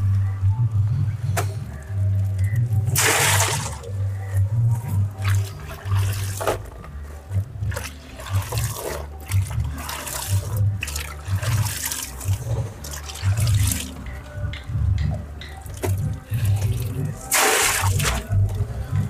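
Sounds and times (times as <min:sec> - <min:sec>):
water splashing and pouring: 0:03.0 - 0:03.9, 0:05.2 - 0:06.7, 0:07.6 - 0:14.0, 0:15.8 - 0:18.3.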